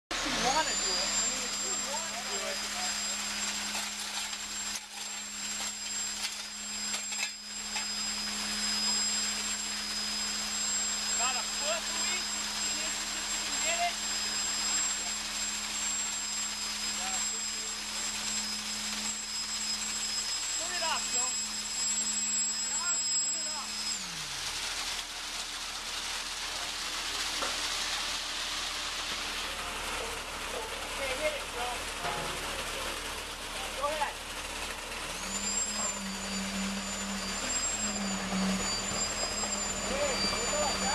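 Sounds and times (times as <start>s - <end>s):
concrete pouring down metal chute: 0.2s - 10.4s, 11.1s - 16.2s, 17.0s - 18.2s, 20.4s - 21.4s, 22.6s - 40.9s.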